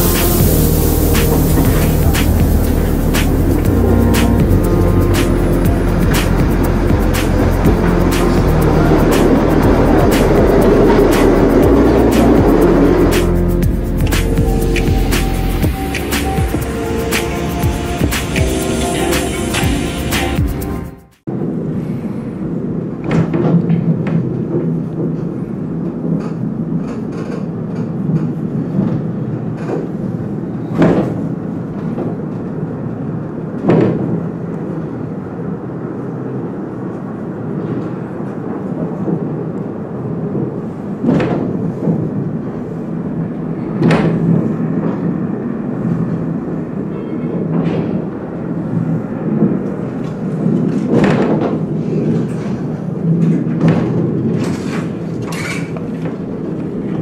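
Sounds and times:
funicular car rumble: 0:00.0 - 0:57.0.

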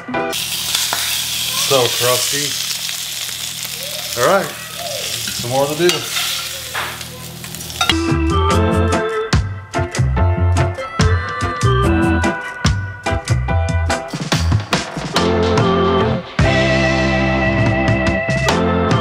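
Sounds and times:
meat sizzling in a frying pan: 0:00.3 - 0:08.0
pan and utensils squeaking: 0:00.4 - 0:08.0.

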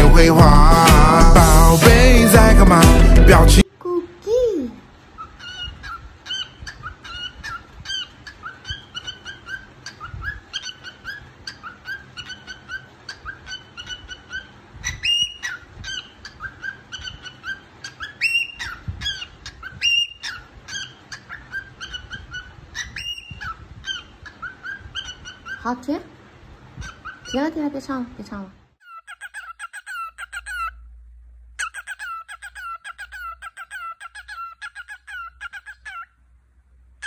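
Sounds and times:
cockatiel chirping: 0:05.2 - 0:25.7, 0:26.8 - 0:27.5, 0:28.8 - 0:30.8, 0:31.6 - 0:36.1.

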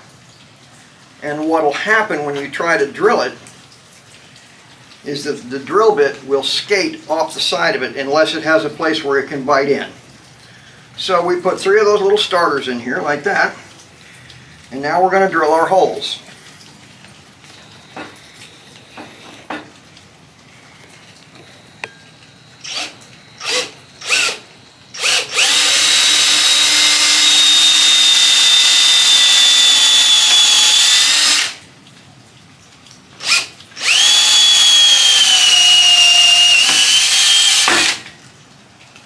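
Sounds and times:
cordless drill boring into wood: 0:22.6 - 0:31.6, 0:33.2 - 0:38.1.

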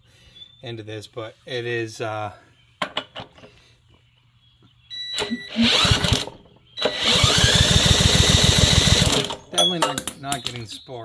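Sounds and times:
recoil starter pulled: 0:05.2 - 0:09.4
small engine cranking: 0:05.2 - 0:09.4.

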